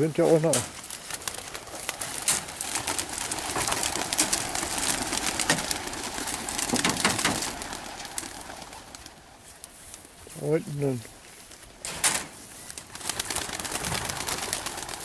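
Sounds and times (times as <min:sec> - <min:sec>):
tall grass rustling against legs: 0:00.0 - 0:15.0.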